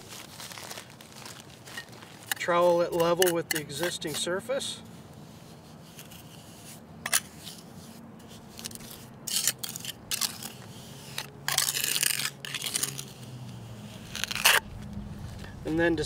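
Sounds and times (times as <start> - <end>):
trowel scraping cement: 2.2 - 14.6.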